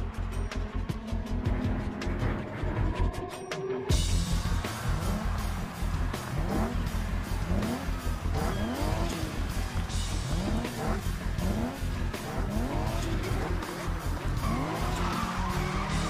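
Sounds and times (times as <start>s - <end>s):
loud music with heavy bass beat: 0.0s - 16.0s
car engines revving: 3.9s - 16.0s.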